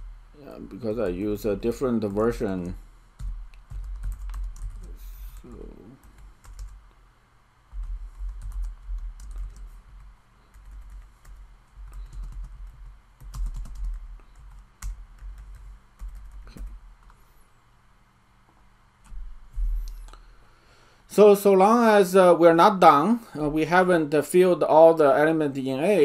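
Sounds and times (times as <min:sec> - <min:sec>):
typing on computer keyboard: 0:03.2 - 0:06.8, 0:07.8 - 0:17.2.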